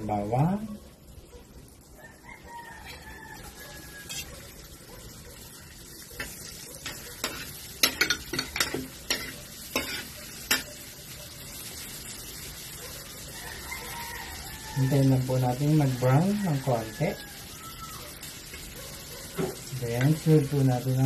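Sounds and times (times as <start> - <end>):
garlic sizzling in butter: 0.0 - 21.0
metal spatula striking a wok: 6.2 - 10.7.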